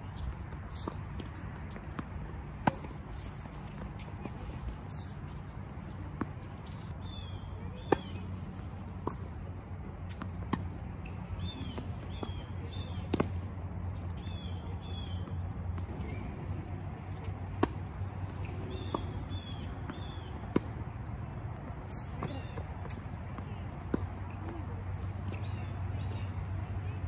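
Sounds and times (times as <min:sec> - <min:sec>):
tennis ball struck by racquets: 0:17.2 - 0:21.2.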